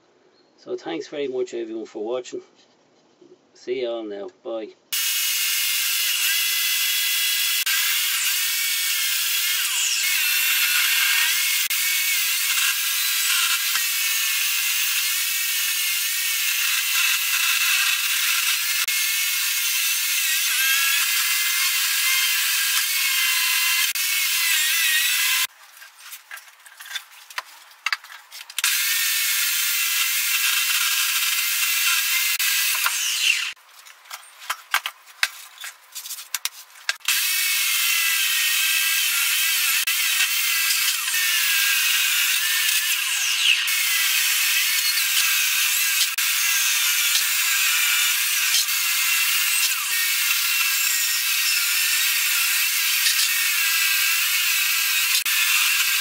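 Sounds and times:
electric chainsaw cutting log: 4.9s - 25.5s, 28.6s - 33.6s, 36.9s - 56.0s.

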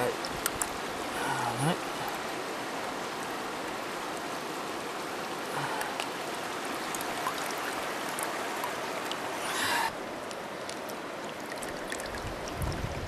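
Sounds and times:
river water running over stones: 0.0s - 13.0s
faint drips or small splashes: 5.5s - 13.0s.

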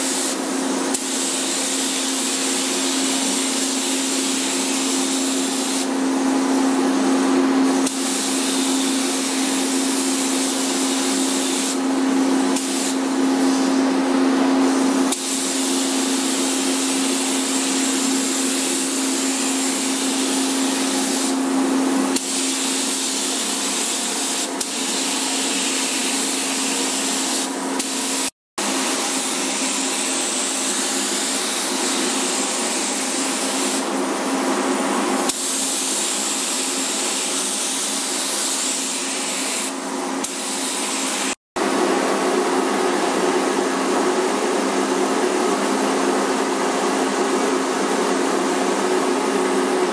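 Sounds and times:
spray gun hissing: 0.0s - 13.8s, 14.6s - 34.0s, 35.3s - 41.4s.

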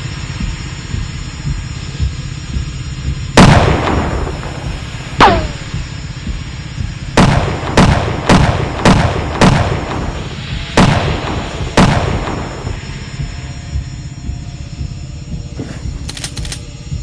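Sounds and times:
handgun shots in a hall: 5.2s - 5.8s.

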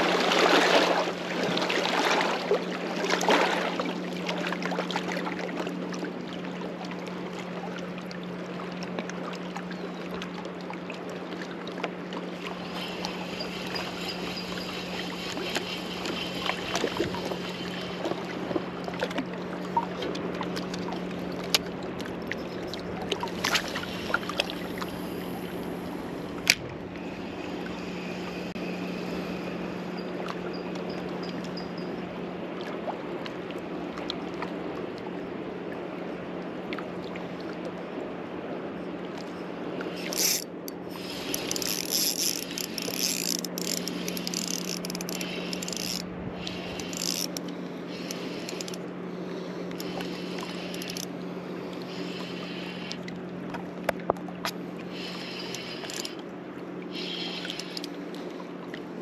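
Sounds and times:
low hum: 2.4s - 59.0s
fishing reel clicking: 12.5s - 18.0s, 40.0s - 48.8s, 49.7s - 51.1s, 55.1s - 56.2s, 57.0s - 58.0s.

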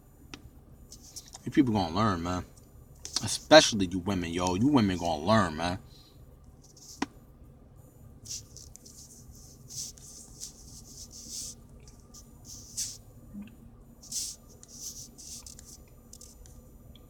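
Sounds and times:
faint steady hum: 0.0s - 17.0s
finger swiping touchscreen: 8.3s - 13.0s, 14.0s - 16.6s.

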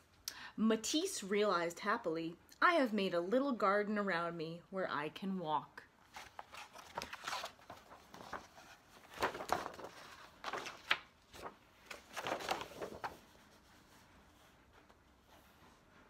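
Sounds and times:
book pages turning and rustling: 6.0s - 16.0s.

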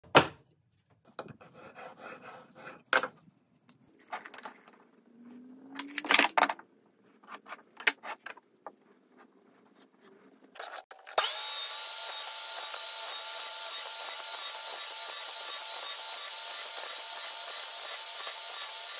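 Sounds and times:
power miter saw running: 11.1s - 18.9s.

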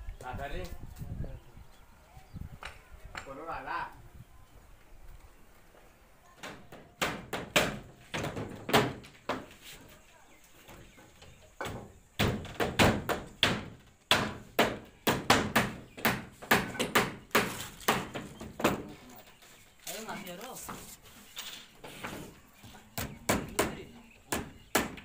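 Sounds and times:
hammer knocking on wood: 6.4s - 9.6s, 11.6s - 19.0s, 21.9s - 25.0s.

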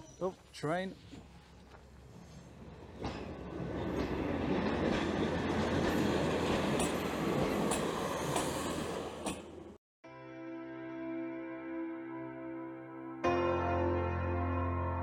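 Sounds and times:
railbus engine and wheels rumbling: 0.0s - 9.8s.

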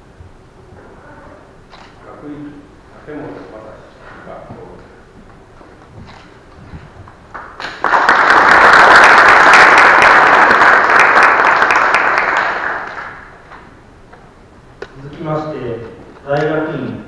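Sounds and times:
audience applauding: 7.2s - 13.4s.

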